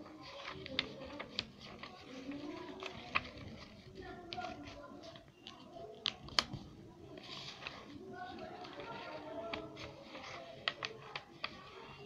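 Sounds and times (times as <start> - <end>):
faint murmuring voices: 0.0 - 12.0
paper card clicks and rustles: 0.0 - 12.0.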